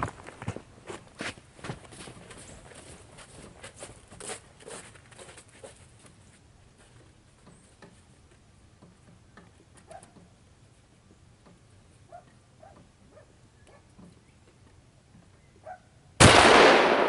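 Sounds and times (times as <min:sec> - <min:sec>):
footsteps in snow: 0:00.0 - 0:07.0.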